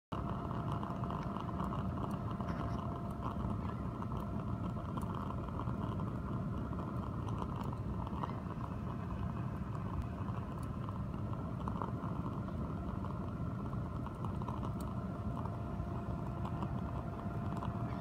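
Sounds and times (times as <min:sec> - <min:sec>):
electric fan hum: 0:00.1 - 0:18.0
stove flame rushing: 0:00.2 - 0:18.0.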